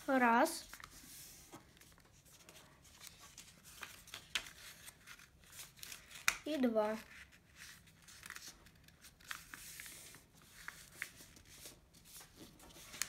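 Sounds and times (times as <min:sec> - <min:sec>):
paper being folded: 0:00.0 - 0:13.0.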